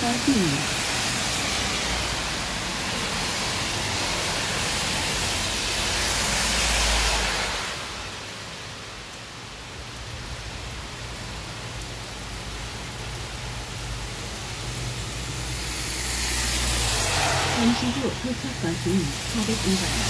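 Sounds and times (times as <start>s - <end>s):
heavy rain on wet road: 0.0s - 20.0s
tyres swishing through water: 15.0s - 20.0s.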